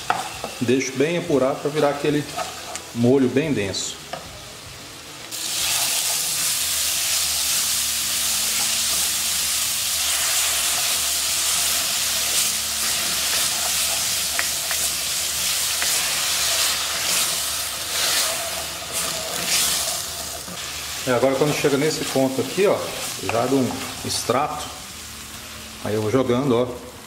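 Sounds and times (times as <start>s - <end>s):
vegetables sizzling in a pan: 0.0s - 27.0s
wooden spoon scraping a pan: 2.1s - 2.9s, 11.5s - 24.8s.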